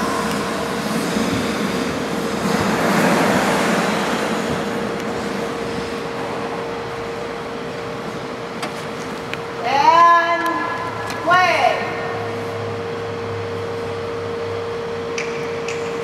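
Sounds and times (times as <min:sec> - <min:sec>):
skates gliding on ice: 0:00.0 - 0:06.5
rushing noise: 0:00.0 - 0:09.6
steady hum: 0:00.0 - 0:16.0.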